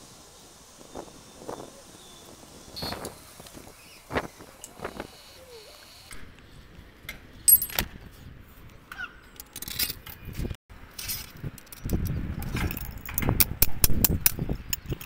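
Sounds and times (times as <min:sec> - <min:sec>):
metallic clinks and knocks: 0:07.5 - 0:07.9, 0:11.0 - 0:15.0.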